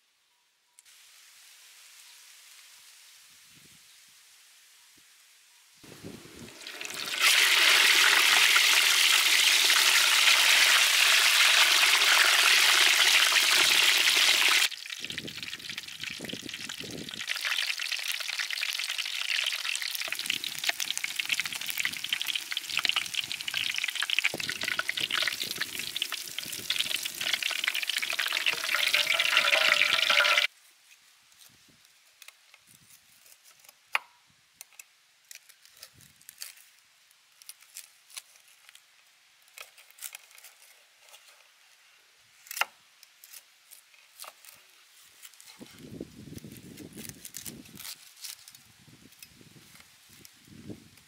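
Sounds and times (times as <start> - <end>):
meat deep-frying in oil: 6.3 - 30.5.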